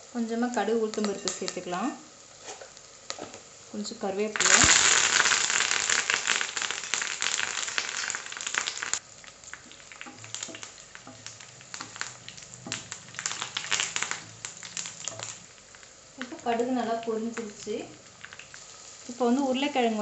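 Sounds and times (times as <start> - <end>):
leaves sizzling in hot oil: 0.0 - 20.0
mustard seeds crackling and popping: 0.5 - 1.9, 2.6 - 20.0
wooden spatula stirring pan: 9.5 - 15.5.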